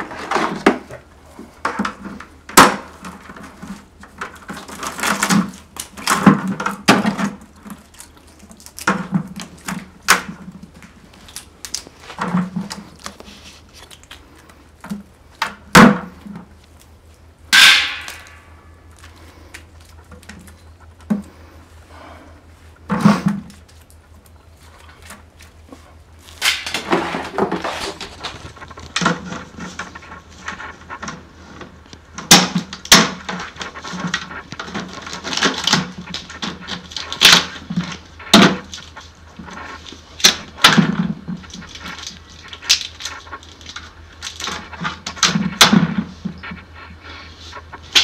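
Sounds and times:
low hum: 7.3s - 35.4s
crab shells cracking: 7.5s - 12.2s, 12.9s - 14.6s.

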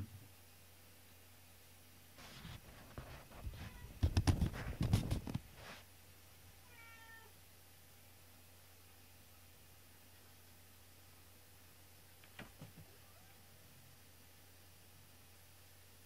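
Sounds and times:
cats scuffling on wooden floor: 2.2s - 5.9s
cat meowing: 3.6s - 4.0s, 6.6s - 7.4s, 12.9s - 13.5s.

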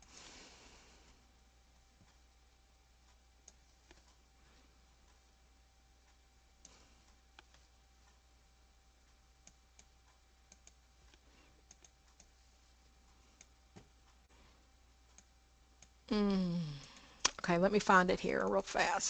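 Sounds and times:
faint computer clicks: 9.1s - 12.4s.

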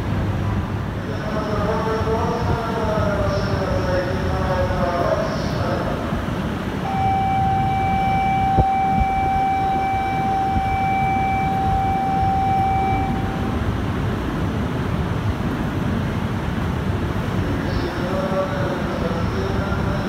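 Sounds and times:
train rumbling at platform: 0.0s - 20.0s
high warning tone: 6.8s - 13.9s.

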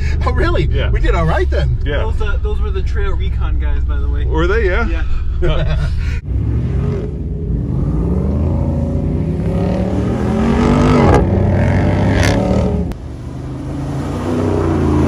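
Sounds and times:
engine revving hard: 6.2s - 12.9s.

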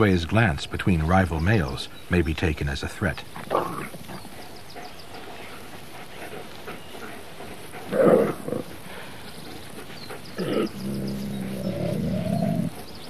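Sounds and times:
wolves snarling: 3.2s - 13.0s
low steady growl: 10.3s - 12.8s.

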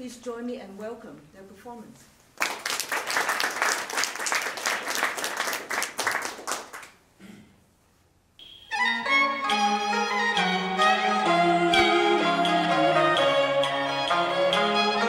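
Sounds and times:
audience applauding: 2.4s - 7.0s
instrumental music with bowed strings: 8.8s - 15.0s.

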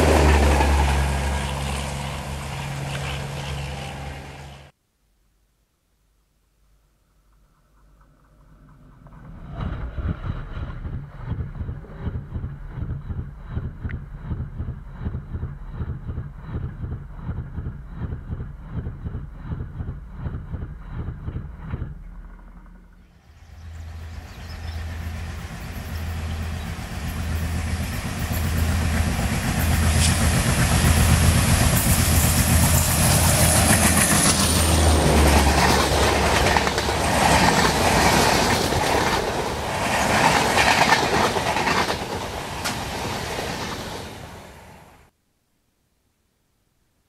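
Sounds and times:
diesel locomotive engine throbbing: 0.0s - 4.7s, 8.0s - 42.8s
wheels clacking over rail joints: 25.2s - 44.2s.

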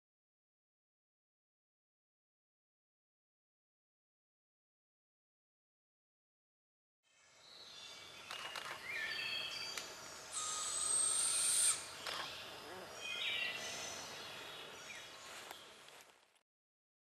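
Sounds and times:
whistled bird notes: 8.3s - 12.3s
young owl begging call: 10.3s - 11.9s.

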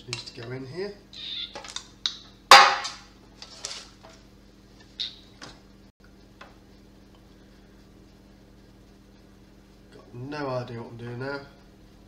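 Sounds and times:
kitchenware knocking on stone worktop: 2.5s - 3.0s.

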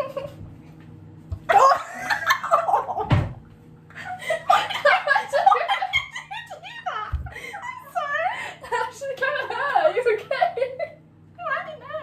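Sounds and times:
women giggling: 1.5s - 3.1s, 3.9s - 6.5s.

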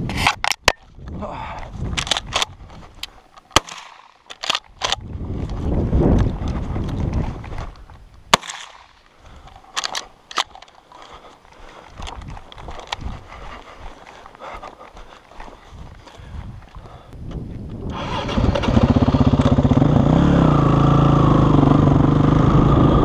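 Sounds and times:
shotgun action clicking: 2.0s - 5.1s, 8.4s - 11.0s.

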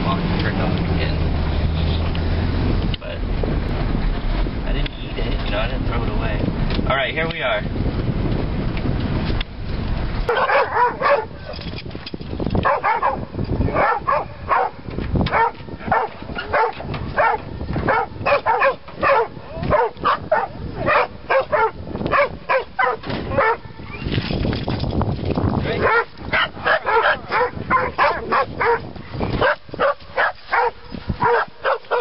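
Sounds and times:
van cabin rumble: 0.0s - 32.0s
dogs barking and yipping: 10.3s - 11.8s, 12.5s - 24.1s, 25.7s - 32.0s.

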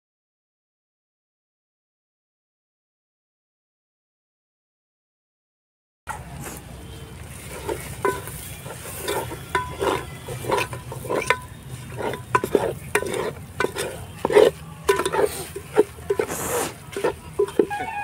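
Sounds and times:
frying mixture sizzling: 6.4s - 18.0s
ladle clinking against pot: 7.4s - 18.0s.

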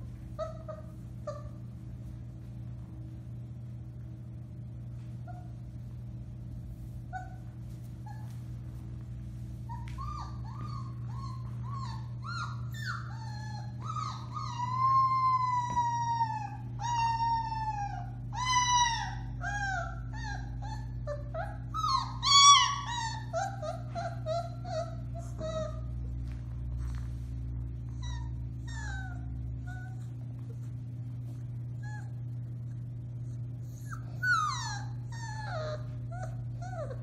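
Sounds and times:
steady low hum: 0.0s - 37.0s
puppy howling and yelping: 0.3s - 1.7s, 7.1s - 8.4s, 9.6s - 26.2s, 27.9s - 30.6s, 31.6s - 37.0s.

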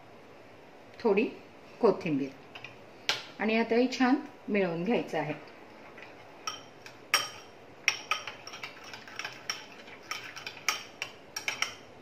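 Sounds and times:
spoon clinking in glass bowl: 6.4s - 11.8s.

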